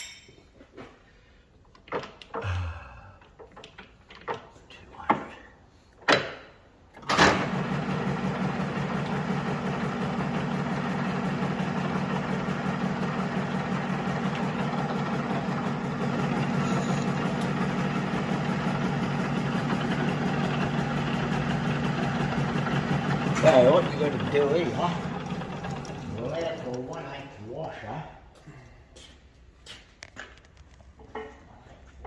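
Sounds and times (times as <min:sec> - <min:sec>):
metal lathe running: 0:07.4 - 0:27.1.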